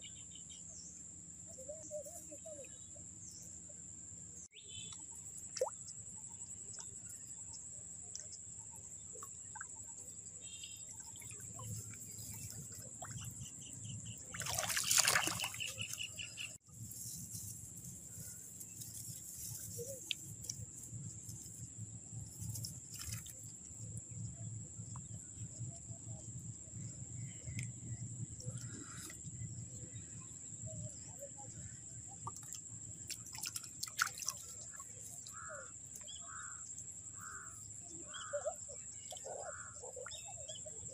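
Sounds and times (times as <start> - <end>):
splashing in shallow water: 4.9 - 7.1, 8.1 - 21.5, 22.4 - 23.7, 32.1 - 36.6.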